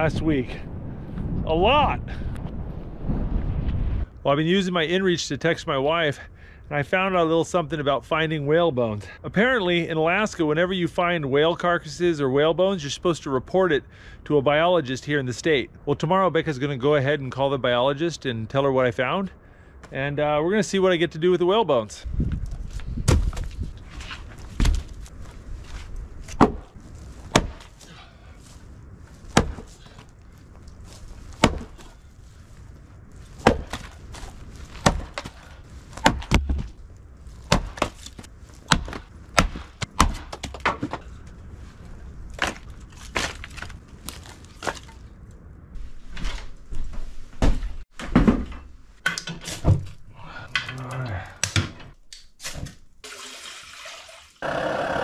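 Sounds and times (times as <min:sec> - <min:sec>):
axe chopping firewood: 0:23.0 - 0:23.5, 0:26.3 - 0:26.7, 0:27.3 - 0:27.8, 0:29.3 - 0:30.0, 0:31.4 - 0:32.0, 0:33.4 - 0:36.7, 0:37.4 - 0:41.0
wood cracking apart: 0:42.3 - 0:45.1.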